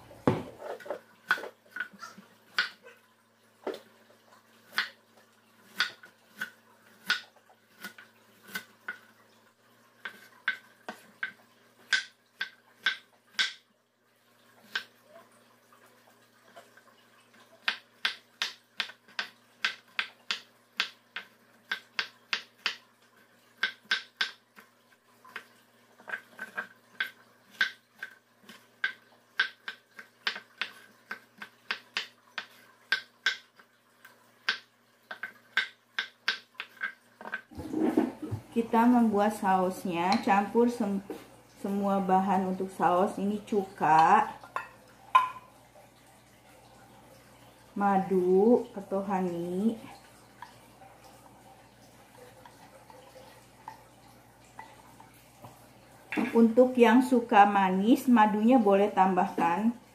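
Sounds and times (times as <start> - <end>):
knife chopping on wooden board: 0.2 - 1.5.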